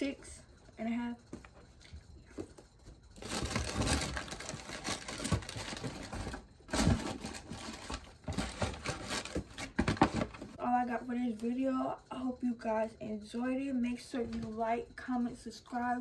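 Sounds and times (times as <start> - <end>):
rustling and crinkling: 1.3 - 10.6.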